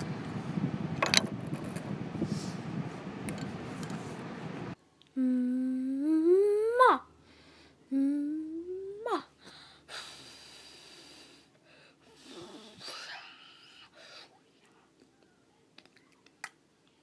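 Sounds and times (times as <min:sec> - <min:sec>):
wind noise on microphone: 0:00.0 - 0:04.8
woman humming: 0:05.1 - 0:07.1, 0:07.9 - 0:09.3.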